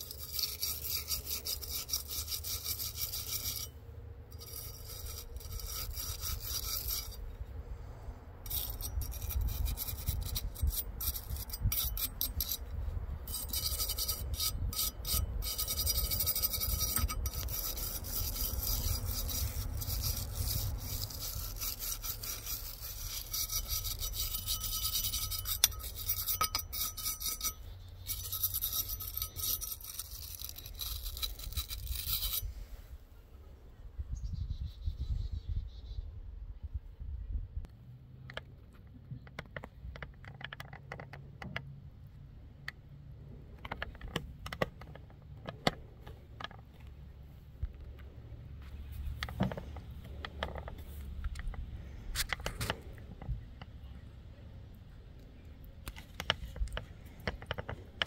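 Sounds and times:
wire brush scrubbing metal: 0.0s - 7.2s, 8.5s - 32.7s.

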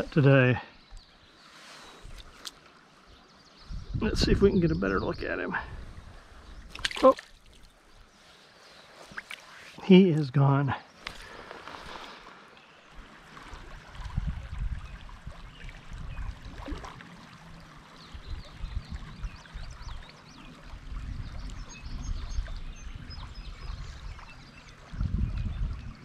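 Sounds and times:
wind buffeting microphone: 3.6s - 6.9s, 13.5s - 16.8s, 18.0s - 26.0s
creek running over riffle: 4.6s - 26.0s.

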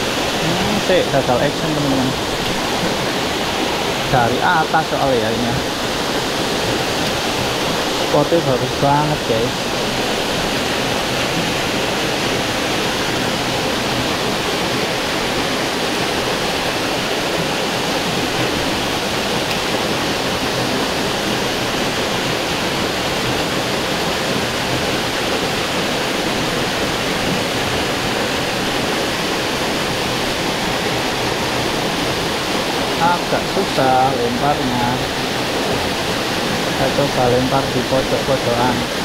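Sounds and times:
stream water rushing: 0.0s - 39.0s.

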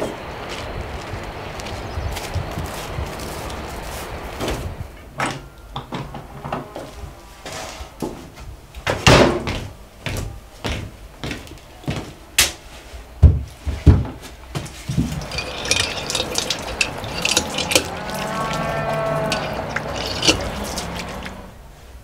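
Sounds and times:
footsteps on plank floor: 9.4s - 12.2s
water trickling and dripping: 15.1s - 21.5s.

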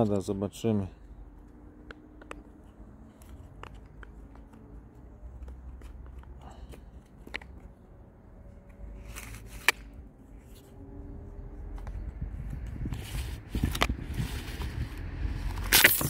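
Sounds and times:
plastic housing clicks and rustling: 1.4s - 7.9s, 8.6s - 10.7s, 11.6s - 14.8s.

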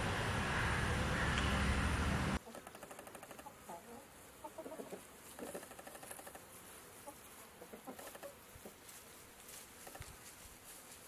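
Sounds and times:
chickens clucking: 2.4s - 8.9s.

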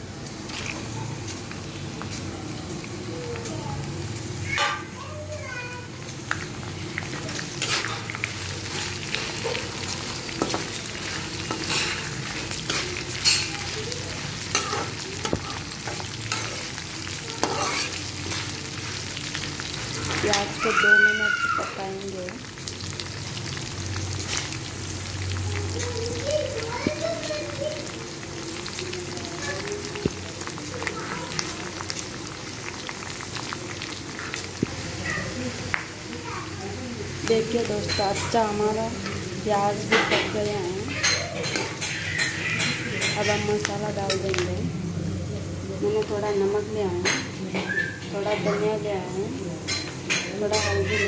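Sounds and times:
onions sizzling in hot oil: 0.0s - 51.0s
metal spatula scraping a pan: 7.6s - 9.4s, 17.4s - 18.5s.

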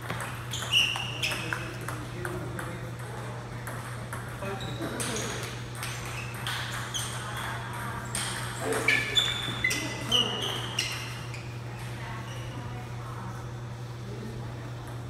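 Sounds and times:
table tennis ball hits: 0.0s - 9.6s.

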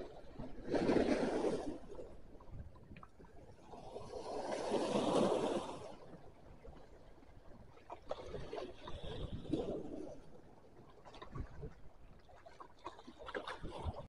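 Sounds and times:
waves washing over rocks: 4.1s - 6.0s.

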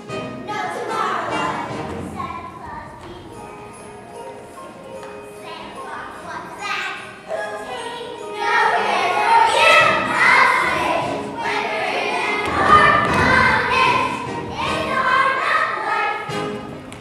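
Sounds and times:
musical accompaniment: 0.0s - 17.0s
girls choir singing: 0.5s - 16.8s
low thumps: 12.4s - 15.2s.

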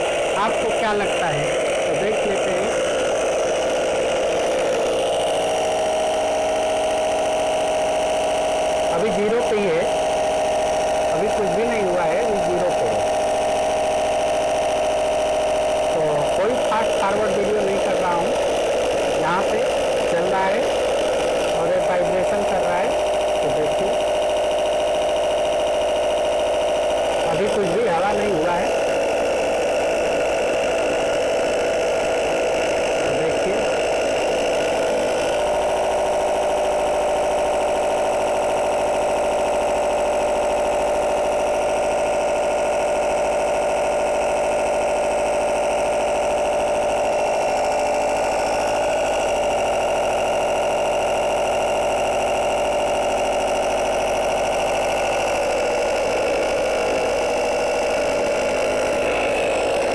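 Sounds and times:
air compressor humming: 0.0s - 59.9s.

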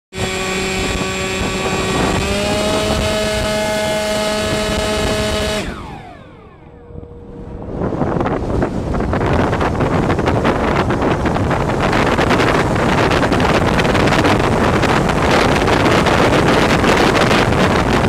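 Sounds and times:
wind rush: 0.1s - 18.0s
motor winding down: 0.2s - 8.4s
electric motor whine: 0.2s - 9.9s.

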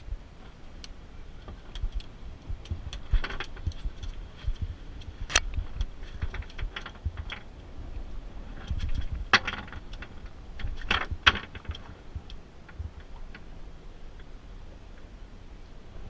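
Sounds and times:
low rumble: 0.0s - 16.0s
hook and line clattering: 1.4s - 7.5s.

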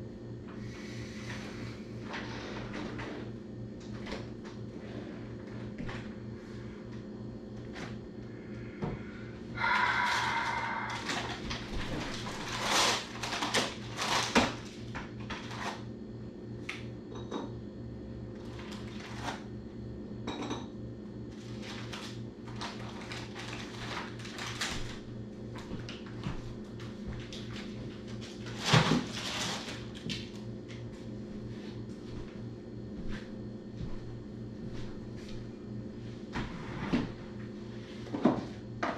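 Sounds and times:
low steady hum: 0.0s - 38.9s
dishes clinking and knocking: 20.3s - 20.7s.

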